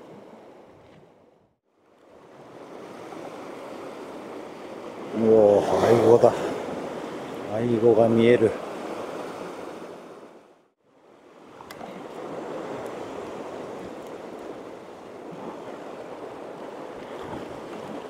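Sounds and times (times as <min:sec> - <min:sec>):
waves washing over rocky shore: 0:04.9 - 0:09.8.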